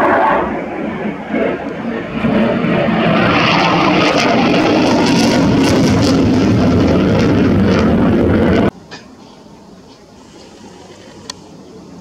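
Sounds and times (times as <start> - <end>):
jet engines in afterburner: 0.0 - 8.8.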